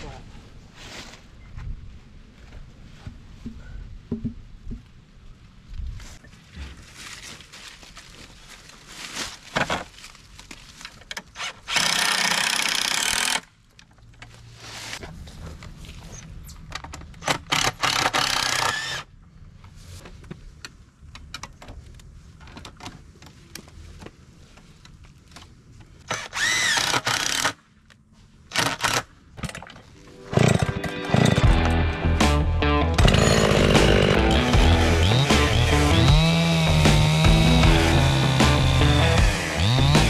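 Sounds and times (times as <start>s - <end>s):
chainsaw pull-start: 11.4s - 13.4s, 26.1s - 27.6s, 30.3s - 31.7s, 33.0s - 40.0s
chainsaw idling and revving: 33.0s - 40.0s.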